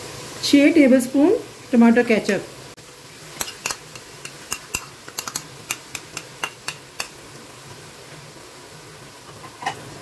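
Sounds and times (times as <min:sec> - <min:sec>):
spoon tapping and scraping a plate: 0:03.4 - 0:07.2, 0:09.4 - 0:09.8.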